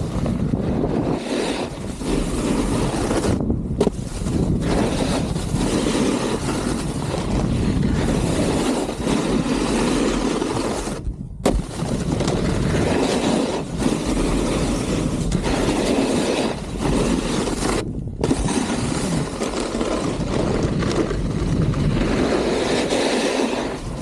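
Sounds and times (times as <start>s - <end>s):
snowboard scraping on snow: 0.0s - 24.0s
wind on microphone: 0.0s - 24.0s
snowboard landing thud: 11.4s - 14.1s.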